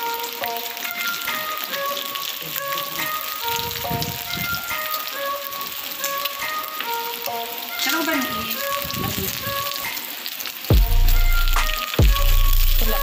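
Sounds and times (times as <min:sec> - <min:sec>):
background music: 0:00.0 - 0:13.0
deep bass boom: 0:10.7 - 0:13.0.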